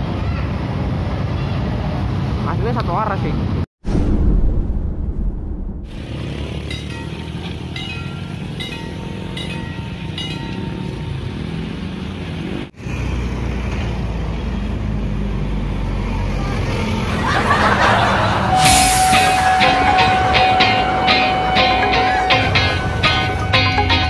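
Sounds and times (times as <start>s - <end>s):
road traffic noise: 0.0s - 3.7s, 5.9s - 24.0s
steady low rumble: 3.8s - 6.0s
level-crossing warning bell ringing: 6.6s - 11.3s, 17.4s - 24.0s.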